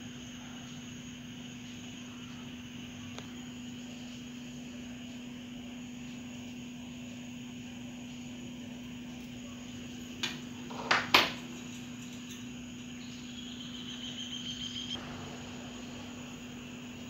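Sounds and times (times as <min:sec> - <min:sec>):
low hum: 0:12.2 - 0:17.0.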